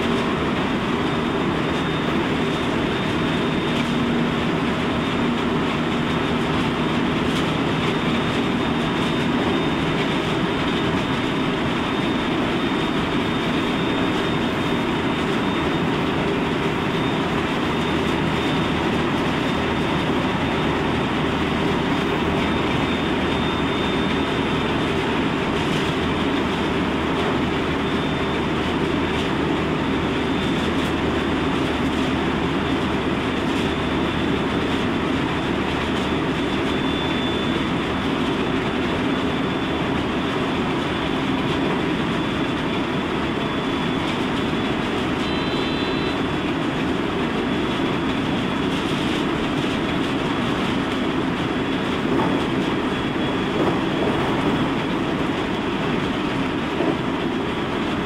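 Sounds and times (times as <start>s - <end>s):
train wheels rumbling on rail: 0.0s - 58.0s
faint high whine: 45.1s - 46.3s.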